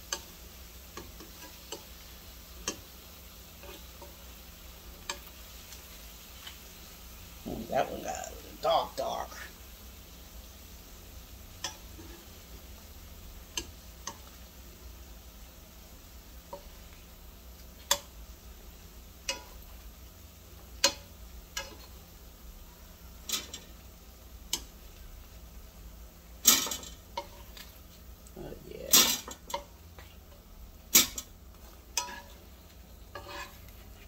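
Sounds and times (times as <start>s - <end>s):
metal tongs tapping a pan: 0.0s - 2.9s, 4.9s - 5.4s, 11.6s - 12.2s, 13.4s - 14.4s, 16.5s - 17.0s, 17.6s - 18.2s, 19.2s - 19.8s, 20.5s - 22.0s, 23.2s - 23.8s, 24.5s - 25.1s, 26.4s - 27.8s, 28.9s - 29.8s, 30.9s - 32.4s
faint oil sizzle: 0.0s - 34.0s
tongs clattering: 23.2s - 23.8s, 26.4s - 27.8s, 28.9s - 30.1s, 30.9s - 32.5s.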